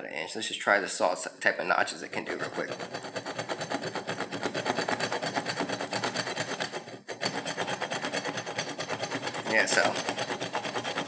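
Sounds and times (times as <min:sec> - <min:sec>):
saw teeth rasping on wood: 0:02.2 - 0:11.0.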